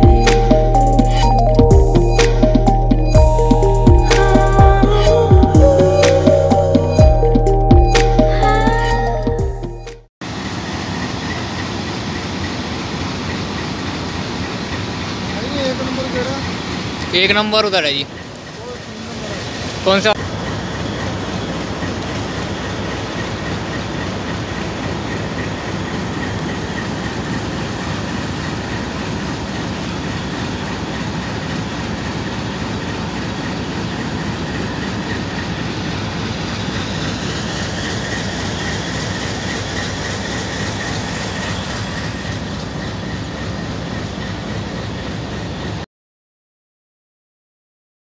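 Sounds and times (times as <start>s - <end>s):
train wheels rumbling and clattering: 10.3s - 45.8s
thin wheel squeal: 32.1s - 45.7s.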